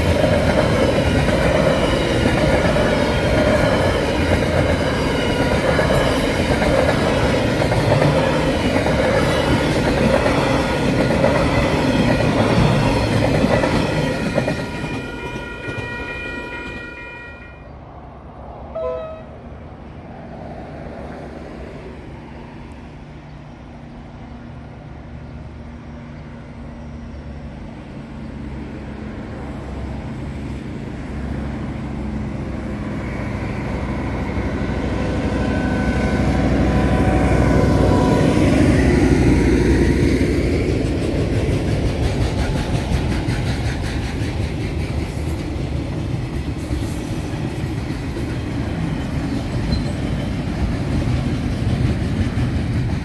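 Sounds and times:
distant locomotive engine hum: 0:00.0 - 0:53.0
wheels clattering and squealing: 0:48.3 - 0:50.4.

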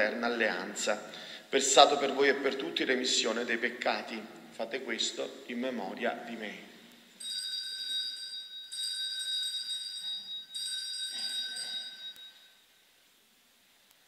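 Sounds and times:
small bell ringing: 0:07.2 - 0:12.6.

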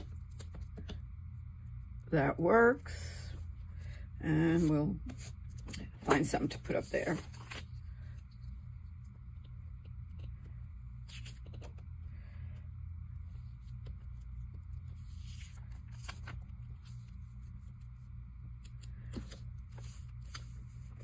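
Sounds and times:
steady low hum: 0:00.0 - 0:21.0
paper rustling and scraping: 0:04.5 - 0:08.3, 0:11.0 - 0:11.8, 0:13.3 - 0:17.9, 0:18.6 - 0:21.0.

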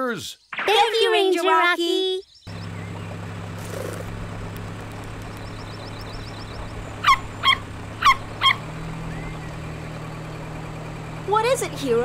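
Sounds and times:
birds chirping: 0:00.0 - 0:12.0
jeep engine humming: 0:02.5 - 0:12.0
puppy yapping: 0:07.0 - 0:08.6.

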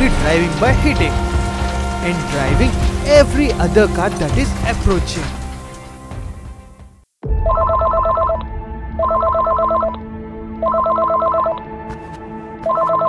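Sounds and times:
low rumble: 0:00.0 - 0:06.8
electronic telephone ringing: 0:07.5 - 0:08.4, 0:09.0 - 0:10.0, 0:10.6 - 0:11.6, 0:12.7 - 0:13.0.

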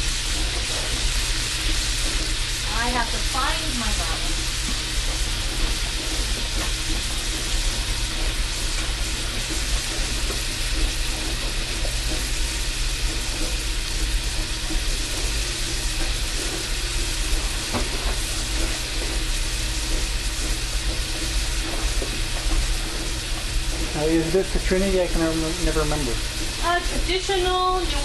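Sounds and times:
vegetables sizzling in oil: 0:00.0 - 0:28.0.

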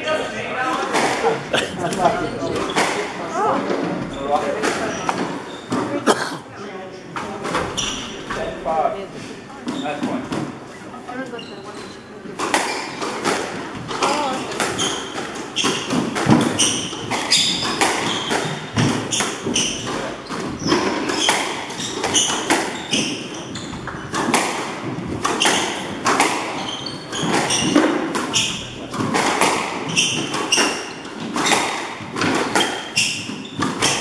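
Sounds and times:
squash ball hitting rackets and walls: 0:00.8 - 0:06.0, 0:12.3 - 0:34.0
shoes squeaking on wooden floor: 0:00.8 - 0:06.5, 0:07.1 - 0:34.0.

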